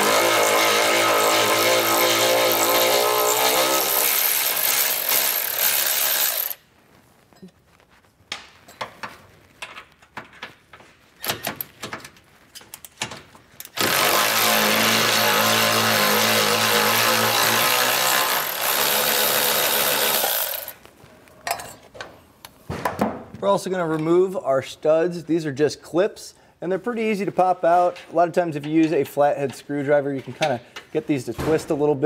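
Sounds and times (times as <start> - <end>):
electric ratchet running: 0.0 - 6.6, 13.8 - 20.8.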